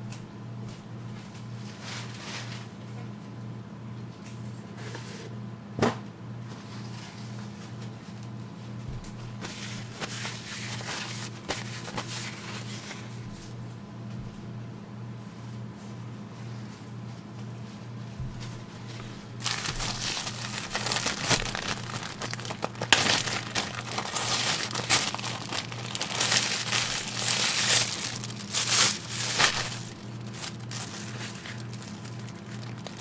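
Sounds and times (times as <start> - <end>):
steady low hum: 7.9 - 33.0
plastic bag crinkling: 19.4 - 33.0.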